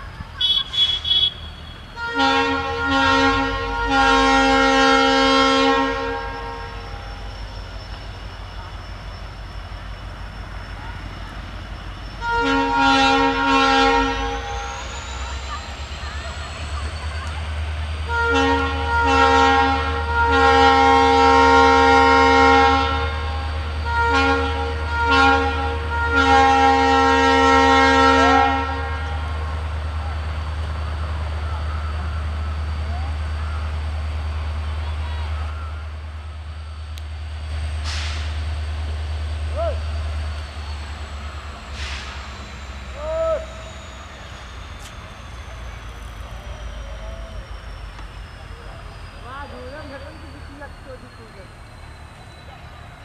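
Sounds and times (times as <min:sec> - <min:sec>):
locomotive engine rumbling: 0:00.0 - 0:53.0
locomotive horn: 0:00.4 - 0:07.3, 0:12.1 - 0:14.9, 0:17.8 - 0:29.5.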